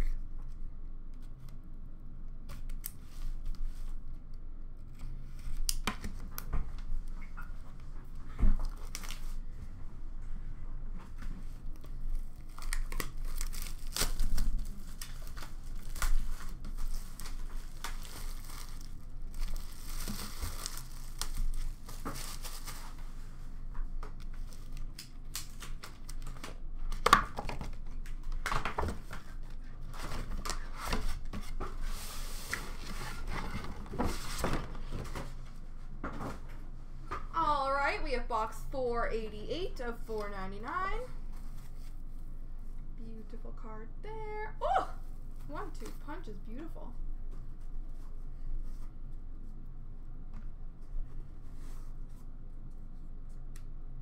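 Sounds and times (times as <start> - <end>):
plastic wrap crinkling and tearing: 8.6 - 9.4, 11.8 - 23.2, 24.2 - 27.2.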